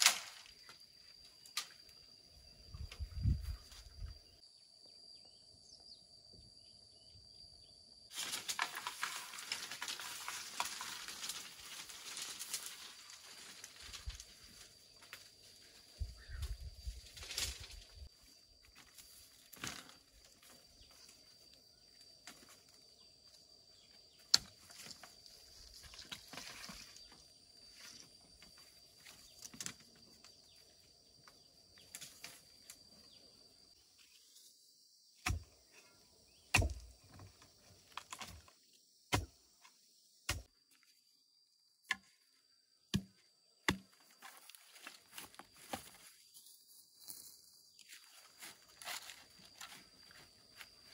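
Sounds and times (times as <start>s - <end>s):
bamboo poles knocking together: 36.5s - 38.5s.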